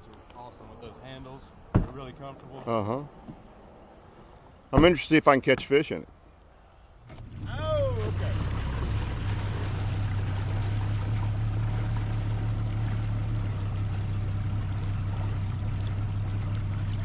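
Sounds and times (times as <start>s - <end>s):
water along the hull: 6.6s - 17.0s
outboard motor humming: 7.0s - 17.0s.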